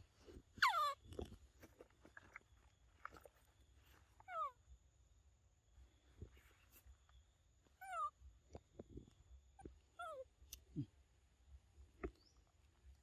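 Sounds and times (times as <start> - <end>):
monkey whimper calls: 0.6 - 1.0.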